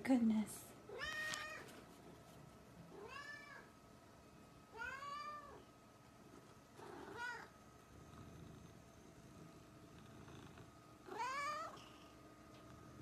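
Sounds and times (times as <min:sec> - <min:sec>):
cat meowing: 0:03.0 - 0:03.7, 0:11.1 - 0:11.8.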